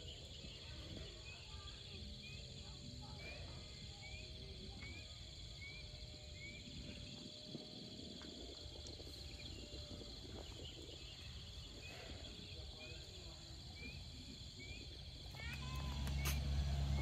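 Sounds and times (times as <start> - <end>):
insects trilling: 0.0 - 17.0
low rumble: 13.7 - 17.0.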